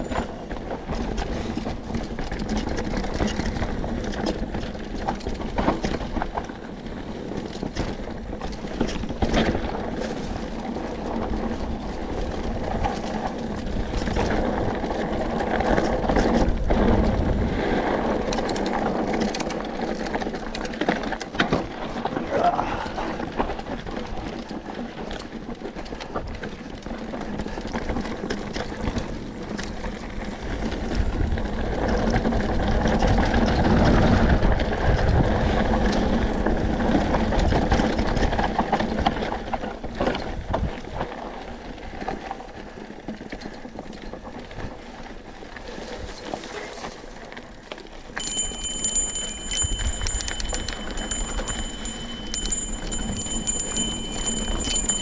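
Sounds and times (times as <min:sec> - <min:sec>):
bike rattling over rocks: 0:00.0 - 0:55.0
tyres crunching over gravel: 0:00.1 - 0:22.4, 0:38.0 - 0:55.0
high ringing tone with ticking: 0:48.2 - 0:55.0.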